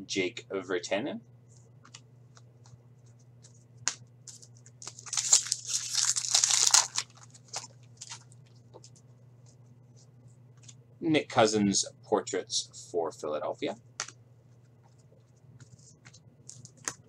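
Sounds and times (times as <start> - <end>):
faint steady hum: 0.0 - 17.0
foil wrapper crinkling: 4.3 - 8.4.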